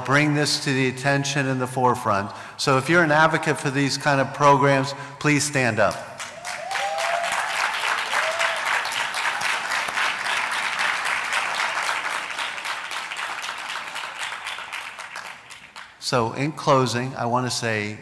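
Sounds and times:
audience applauding: 6.2 - 16.0.

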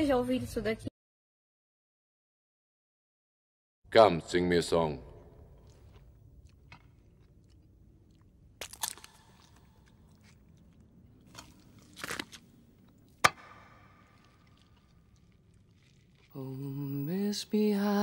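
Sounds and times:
bites and crunches: 5.6 - 16.3.

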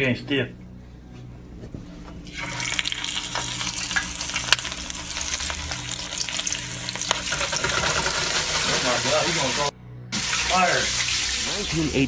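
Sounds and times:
oil spattering and popping: 2.3 - 8.4
fish sizzling in hot oil: 2.3 - 11.8.

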